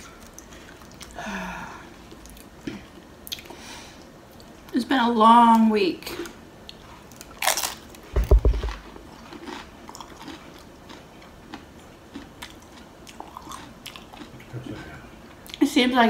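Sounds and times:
tortilla chip crunching: 0:07.1 - 0:14.4
loud low thud: 0:08.2 - 0:08.8.

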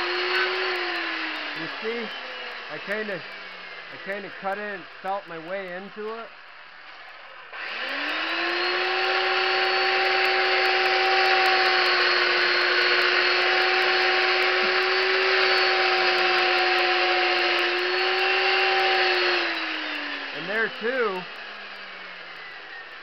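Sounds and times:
chainsaw cutting wood: 0:00.0 - 0:23.0.

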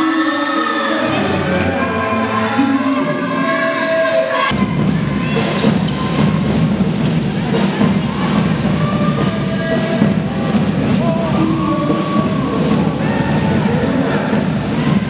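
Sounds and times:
players and spectators voices: 0:00.0 - 0:15.0
basketball bouncing: 0:05.5 - 0:11.2.

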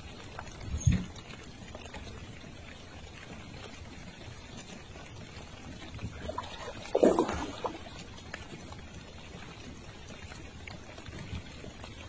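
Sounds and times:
low wash of water: 0:00.0 - 0:12.0
loud water splash: 0:06.3 - 0:08.0.

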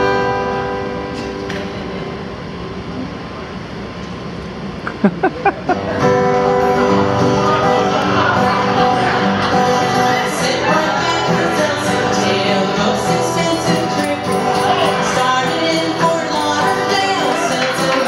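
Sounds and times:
acoustic guitar: 0:00.0 - 0:18.0
woman singing into a microphone: 0:10.0 - 0:18.0.

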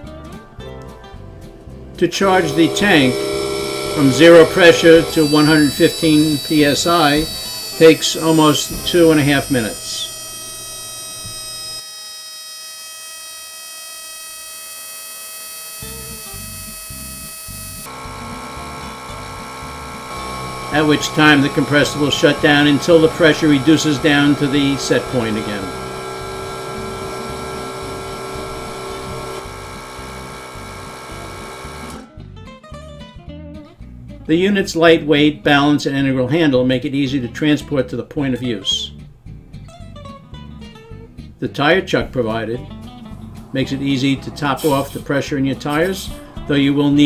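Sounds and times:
air compressor whining hum: 0:02.0 - 0:32.1, 0:42.6 - 0:47.0.

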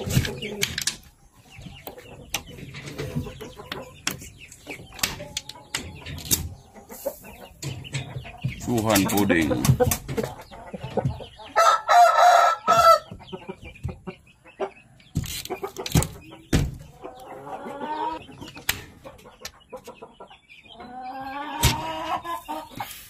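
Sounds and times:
rooster crowing: 0:11.6 - 0:13.0.

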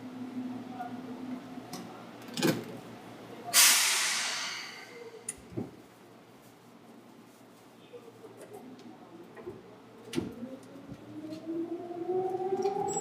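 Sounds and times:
compressed air hiss: 0:03.6 - 0:05.0.

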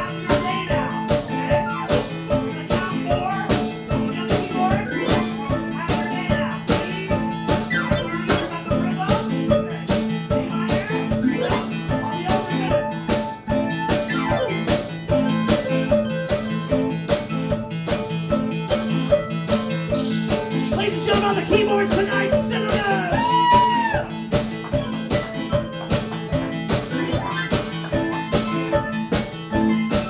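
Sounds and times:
drum kit beat: 0:00.0 - 0:30.0
live band playing: 0:00.0 - 0:30.0
pitch-bending lead line: 0:00.0 - 0:30.0.

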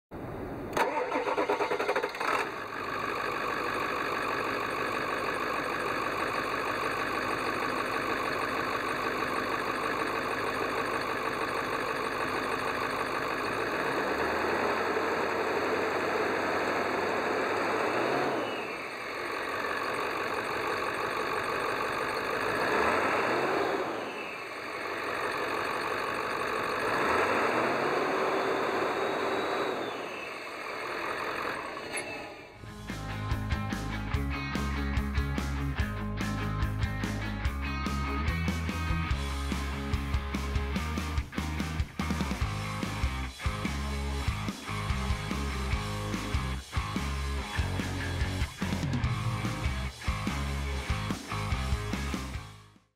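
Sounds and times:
diesel engine starting and idling: 0:00.2 - 0:52.8
engine revving: 0:00.7 - 0:52.7.

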